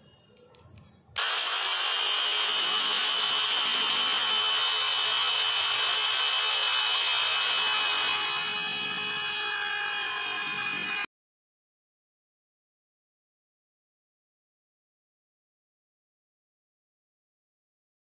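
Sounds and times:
electric drill grinding pencil: 0:01.2 - 0:11.1.

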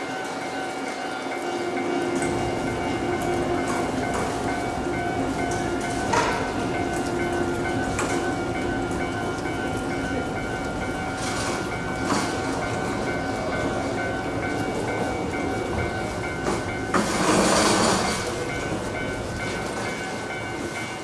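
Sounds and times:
train wheels clacking over rails: 0:00.0 - 0:21.0.

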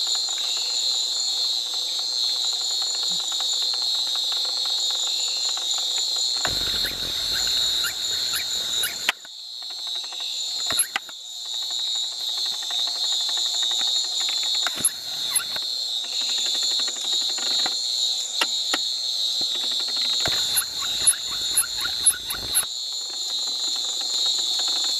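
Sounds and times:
insect chorus drone: 0:00.0 - 0:24.9
scattered clicks: 0:06.5 - 0:09.3, 0:19.5 - 0:22.7.

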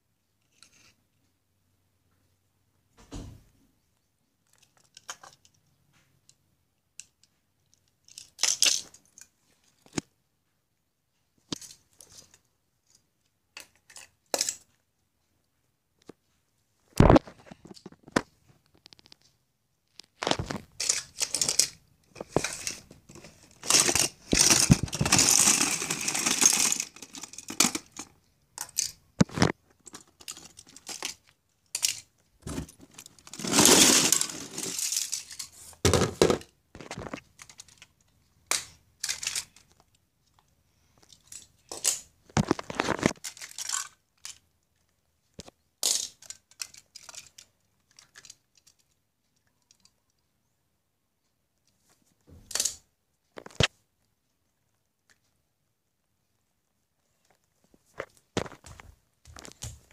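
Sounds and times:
rustling and scraping: 0:16.0 - 0:28.2, 0:29.2 - 0:37.9, 0:40.8 - 0:44.0
toy cars clacking on wooden floor: 0:20.4 - 0:29.0, 0:45.4 - 0:48.9.

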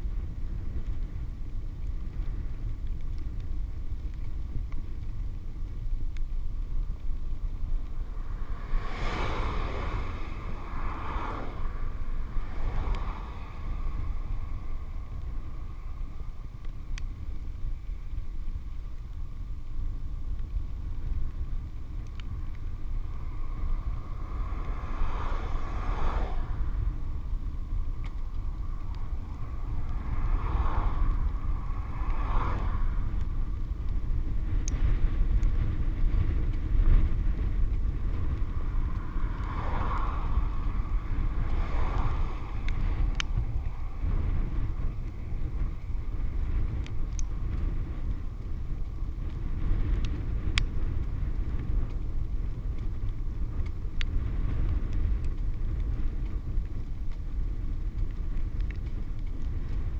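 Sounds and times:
wind buffeting camera: 0:00.0 - 0:59.9
cars passing: 0:07.6 - 0:17.2, 0:22.1 - 0:34.3, 0:37.0 - 0:49.9.

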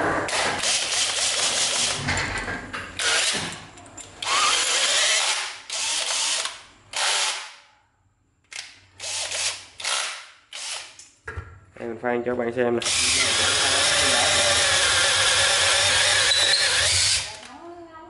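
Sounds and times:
cordless drill bursts: 0:04.2 - 0:07.5, 0:09.0 - 0:10.9, 0:12.8 - 0:17.4.

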